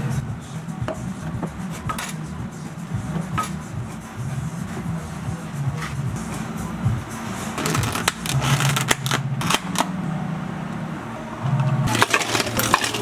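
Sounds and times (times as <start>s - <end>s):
low hum of cafe equipment: 0.0s - 13.0s
plastic lids clicking and rustling: 11.9s - 13.0s.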